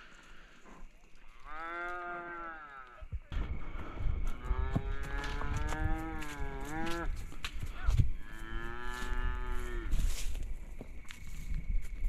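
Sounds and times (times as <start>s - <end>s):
cattle mooing: 1.4s - 2.9s.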